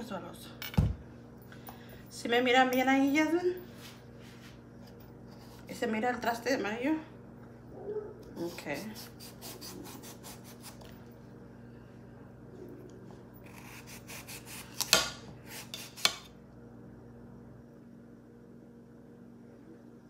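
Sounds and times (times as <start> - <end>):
knife scraping pumpkin rind: 8.4 - 10.9, 13.4 - 16.3.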